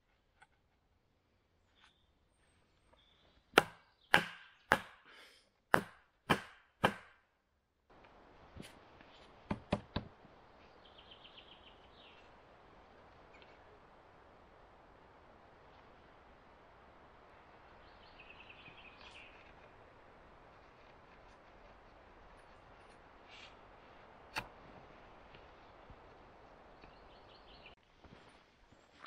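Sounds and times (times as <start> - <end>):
wooden mallet knocking on post: 9.5 - 10.1.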